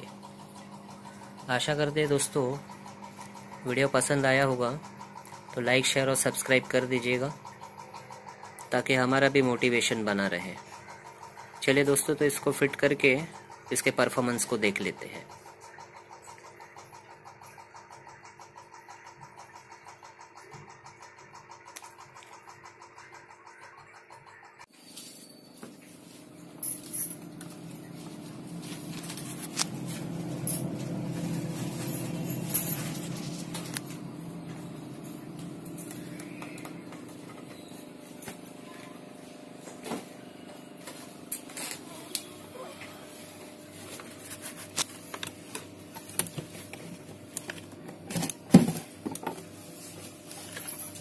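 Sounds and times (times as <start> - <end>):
refrigerator humming: 0.0 - 51.0
clicks and knocks of compartments: 44.8 - 49.5.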